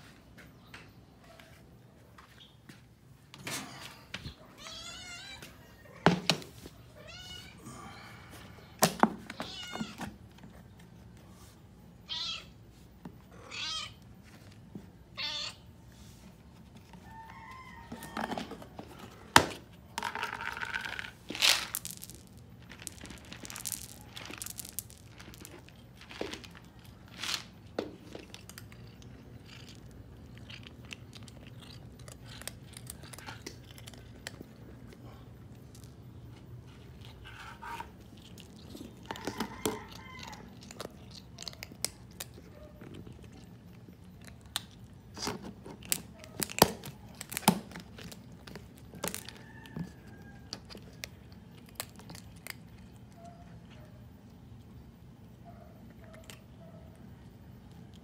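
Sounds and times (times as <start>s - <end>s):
cat meowing: 4.4s - 5.5s, 12.0s - 12.6s, 13.3s - 14.0s, 15.2s - 15.7s
cat crunching kibble: 18.1s - 55.0s.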